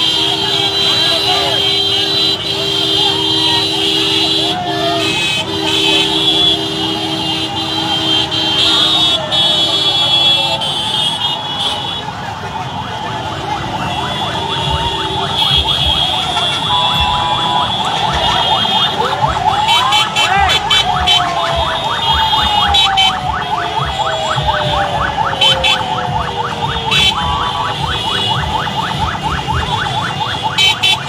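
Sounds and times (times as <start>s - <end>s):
car horns: 0.0s - 31.0s
crowd noise: 0.0s - 31.0s
motor traffic: 0.0s - 31.0s
siren-like tone: 12.6s - 30.8s.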